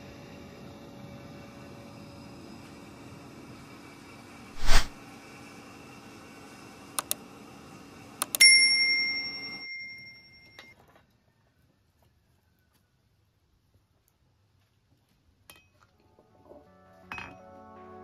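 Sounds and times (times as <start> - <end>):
quick whoosh: 4.6 - 5.0
mouse clicks: 8.2 - 8.4
bell ding: 8.4 - 10.7.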